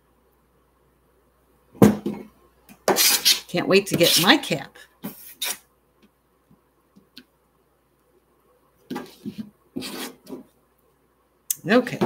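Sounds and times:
knife scraping and rubbing: 2.9s - 4.4s, 5.1s - 5.6s, 9.1s - 10.4s.

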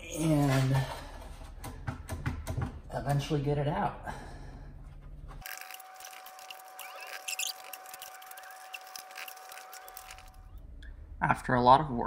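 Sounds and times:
plastic cover clicking and creaking: 5.4s - 10.4s.

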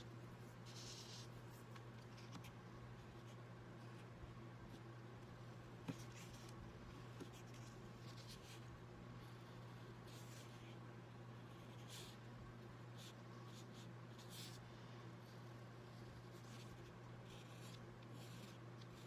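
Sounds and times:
pen scratching on paper: 15.9s - 19.0s.

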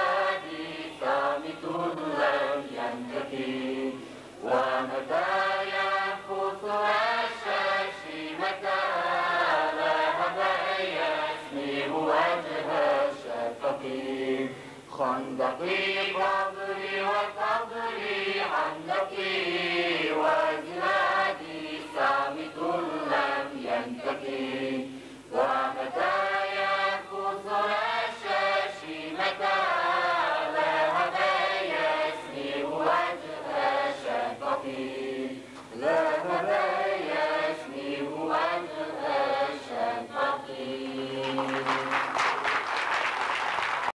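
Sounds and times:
choir singing a hymn: 0.0s - 42.1s
applause: 41.2s - 44.0s.

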